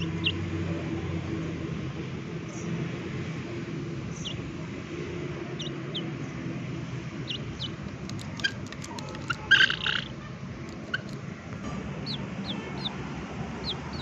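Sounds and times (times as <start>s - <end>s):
chickens chirping: 0.0s - 0.4s, 5.5s - 6.3s, 7.1s - 14.0s
chicken clucking: 7.3s - 11.2s.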